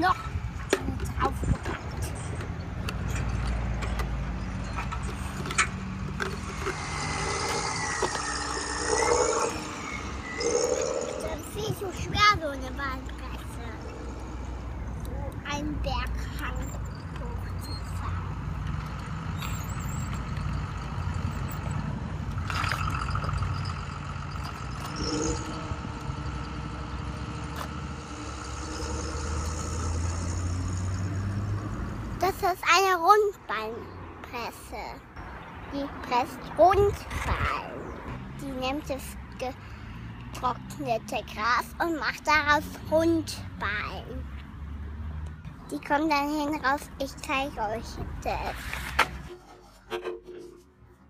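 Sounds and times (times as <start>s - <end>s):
engine low hum: 0.2s - 32.2s
higher steady engine tone: 4.6s - 32.2s.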